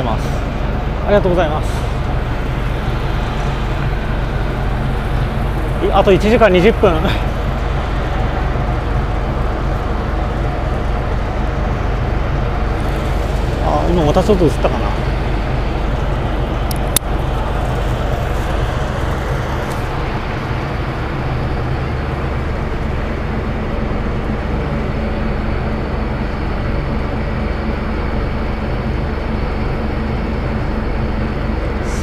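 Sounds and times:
rushing water noise: 0:00.0 - 0:23.8
ferry engines droning: 0:00.0 - 0:32.0.

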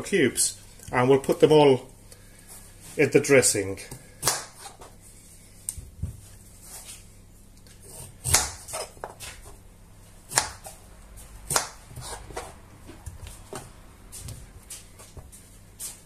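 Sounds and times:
knife chopping on cutting board: 0:07.9 - 0:09.4, 0:10.3 - 0:10.8, 0:11.4 - 0:12.6.

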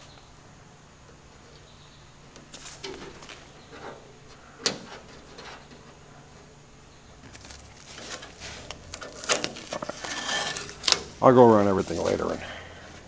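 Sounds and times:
masking tape peeling off: 0:07.2 - 0:12.4.

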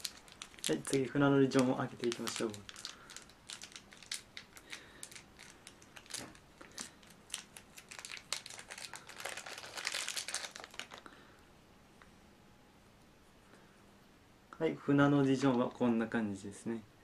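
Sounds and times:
plastic packaging crinkling: 0:00.0 - 0:11.1.

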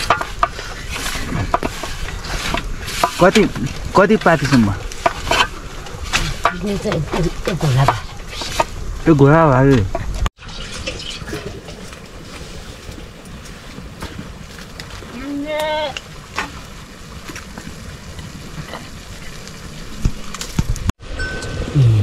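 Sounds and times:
metal pots clicking: 0:00.0 - 0:08.8
wood fire crackling: 0:00.0 - 0:21.0
short rising voice: 0:21.6 - 0:22.0.

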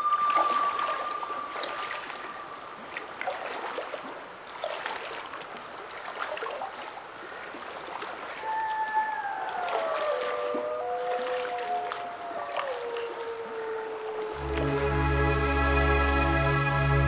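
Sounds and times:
water splashing from wading: 0:00.0 - 0:15.1
background music notes: 0:14.4 - 0:17.0.

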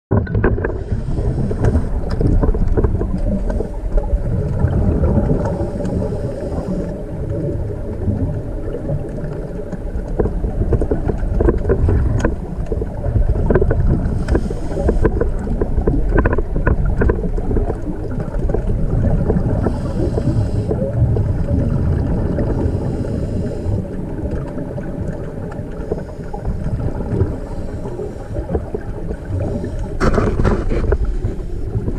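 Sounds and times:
underwater rumble of moving water: 0:00.1 - 0:31.9
faint hissing rush: 0:05.1 - 0:08.0, 0:14.1 - 0:15.2, 0:19.4 - 0:24.1, 0:25.5 - 0:30.0.

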